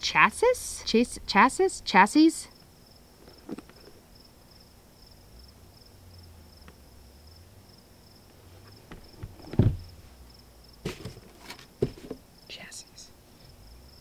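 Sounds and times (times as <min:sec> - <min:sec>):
insect chirping: 0:00.0 - 0:10.9, 0:11.8 - 0:14.0
cardboard box knocks and clicks: 0:08.9 - 0:10.0, 0:10.8 - 0:12.2
shoe set down on table: 0:08.9 - 0:10.0, 0:10.8 - 0:12.2.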